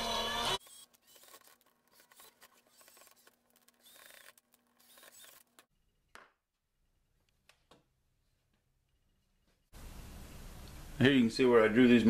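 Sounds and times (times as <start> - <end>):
cordless drill running: 0.6 - 5.7.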